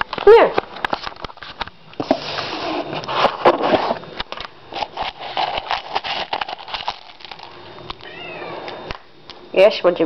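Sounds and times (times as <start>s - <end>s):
dry kibble rattling in a bowl: 4.7s - 7.6s.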